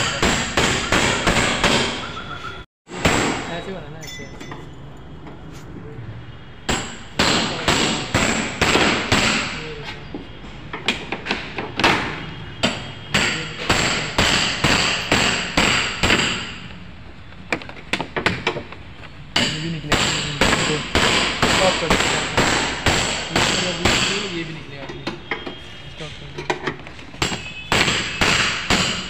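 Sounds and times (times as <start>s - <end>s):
rapid hammer blows: 0.0s - 2.0s, 12.6s - 16.6s, 19.4s - 24.4s.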